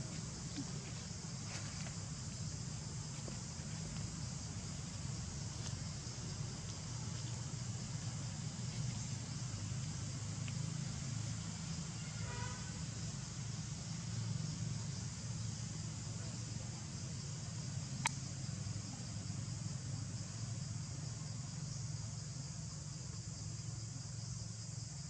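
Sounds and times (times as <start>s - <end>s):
faint clicks: 18.0s - 18.2s.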